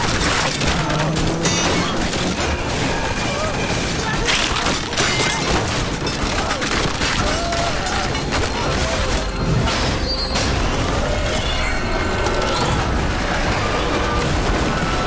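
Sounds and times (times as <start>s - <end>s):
heavy crashes and impacts: 0.0s - 15.0s
dramatic music score: 5.7s - 15.0s.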